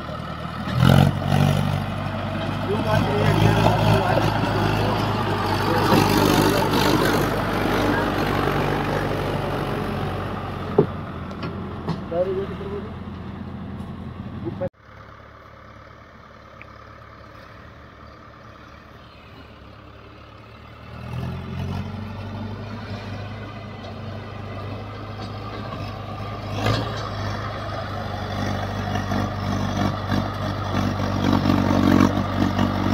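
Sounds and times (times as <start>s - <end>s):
tractor diesel engine: 0.0s - 32.9s.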